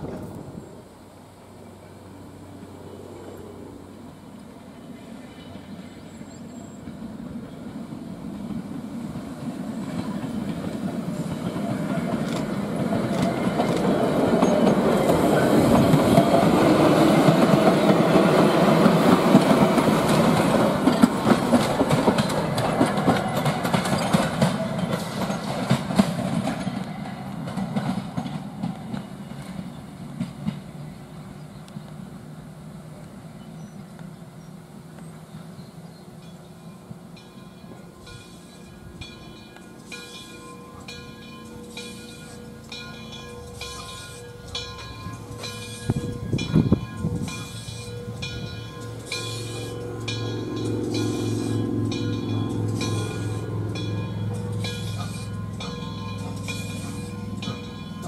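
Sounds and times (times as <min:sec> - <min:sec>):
electric train rumbling past: 0:00.0 - 0:58.0
wheels clicking over rail joints: 0:06.8 - 0:32.0, 0:36.2 - 0:58.0.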